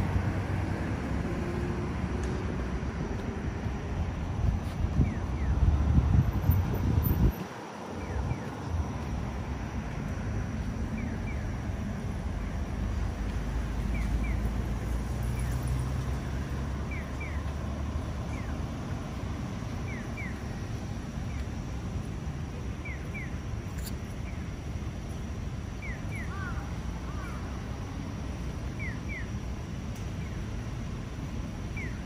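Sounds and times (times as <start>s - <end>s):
road traffic: 0.0s - 32.0s
crossing signal bird chirps: 16.8s - 17.5s, 19.8s - 20.4s, 25.8s - 26.4s.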